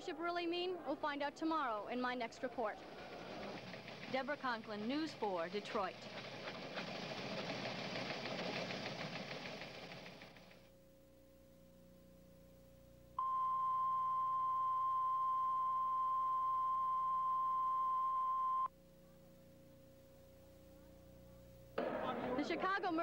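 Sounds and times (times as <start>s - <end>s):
faint steady hum: 10.3s - 23.0s.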